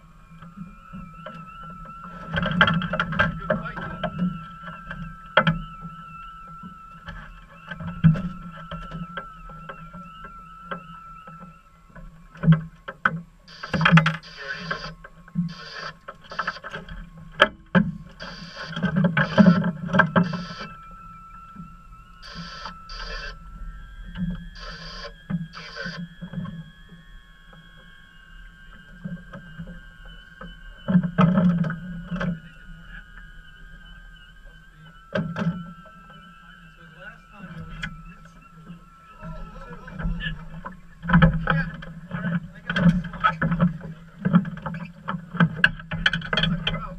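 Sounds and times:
faint wavering whistle tone: 0:00.0 - 0:46.9
short bursts of noise: 0:13.5 - 0:16.8, 0:18.2 - 0:20.7, 0:22.2 - 0:23.4, 0:24.6 - 0:26.0.

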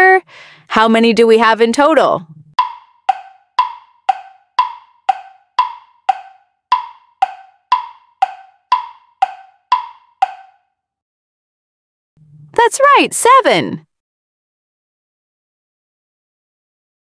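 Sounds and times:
wood-block clock ticking: 0:02.5 - 0:10.7.

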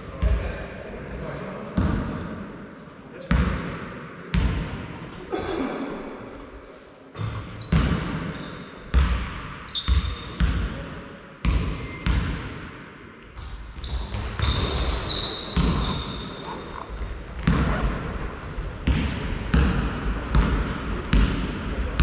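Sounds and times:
basketball bouncing in echoing hall: 0:00.0 - 0:00.7, 0:01.6 - 0:06.5, 0:07.2 - 0:22.0
sneaker squeaks: 0:07.4 - 0:08.8, 0:09.7 - 0:10.4, 0:13.4 - 0:18.0, 0:18.9 - 0:19.9.

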